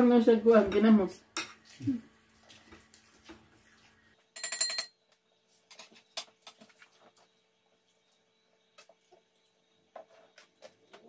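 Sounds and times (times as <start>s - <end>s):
cutlery clinking on metal bowl: 0.7s - 1.8s, 4.4s - 5.0s.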